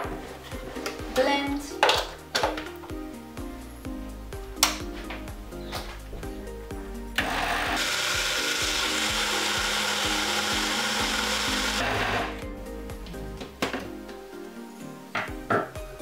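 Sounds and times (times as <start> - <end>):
blender running: 7.2 - 12.4.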